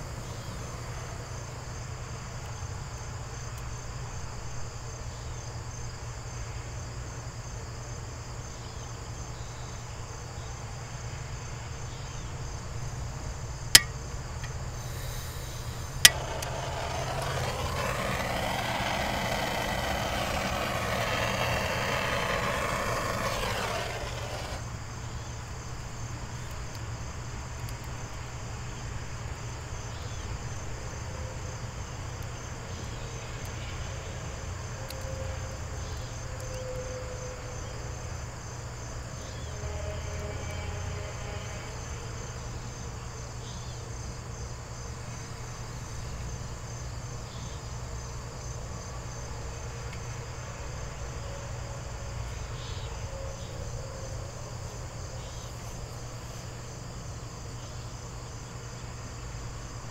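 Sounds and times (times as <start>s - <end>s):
crickets chirping: 0.0s - 59.9s.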